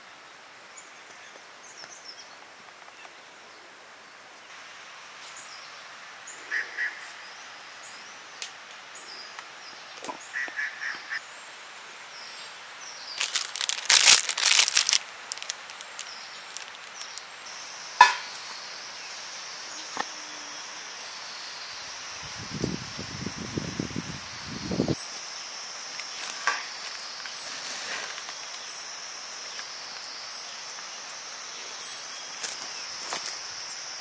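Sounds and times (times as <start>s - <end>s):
steady hiss: 0.0s - 34.0s.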